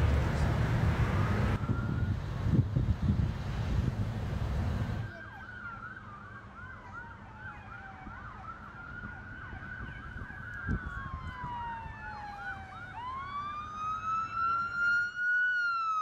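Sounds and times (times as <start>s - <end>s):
siren slow wail: 1.0s - 2.6s, 5.0s - 16.0s
siren fast yelp: 5.1s - 8.5s.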